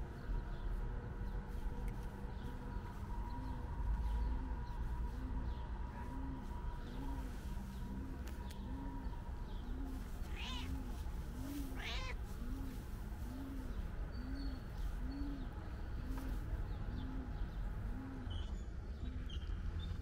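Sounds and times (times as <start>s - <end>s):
cat meowing: 10.3s - 10.8s, 11.7s - 12.2s.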